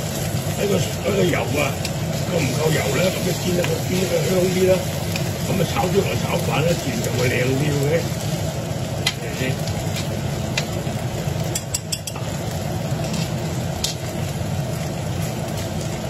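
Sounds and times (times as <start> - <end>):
fish and onion frying in a pan: 0.0 - 16.0
steady low hum: 0.0 - 16.0
metal spoon scraping a pan: 13.0 - 13.4.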